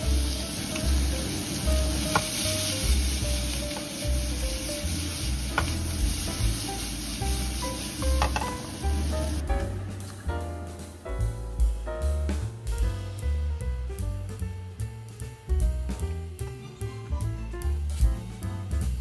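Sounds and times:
meat sizzling in frying pan: 0:00.0 - 0:09.7.

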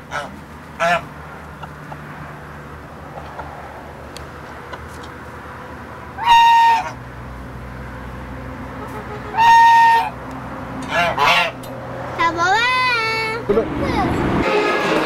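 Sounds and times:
goose honking: 0:00.0 - 0:01.1, 0:06.2 - 0:07.0, 0:08.6 - 0:10.2, 0:10.8 - 0:11.6.

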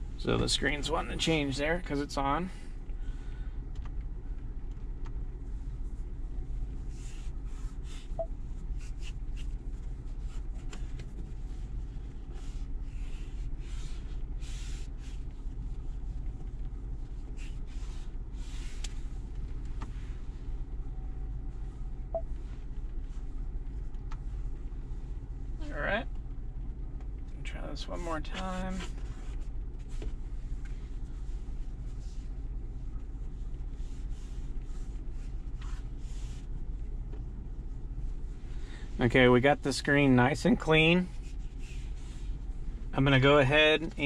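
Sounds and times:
car engine idling hum: 0:00.0 - 0:44.0
soft swishes of wiping: 0:06.8 - 0:19.2, 0:28.7 - 0:32.4, 0:33.1 - 0:36.6, 0:41.1 - 0:42.8.

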